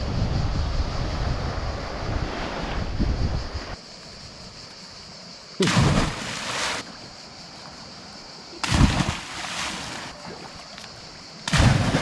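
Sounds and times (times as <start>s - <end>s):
steady high hiss: 0.0s - 12.0s
small waves breaking on shore: 5.6s - 7.0s, 8.6s - 10.6s.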